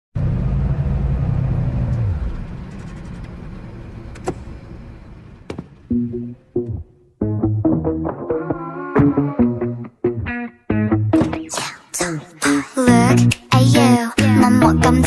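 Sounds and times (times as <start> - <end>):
car engine rumble: 0.2 - 7.2
sped-up pop song intro: 7.2 - 15.0.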